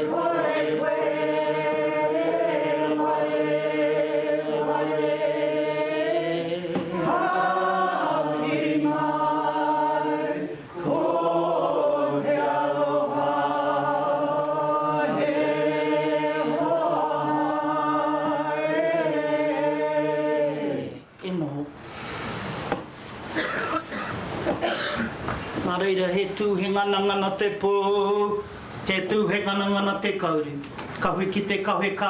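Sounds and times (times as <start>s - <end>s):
group of voices singing: 0.0s - 21.1s.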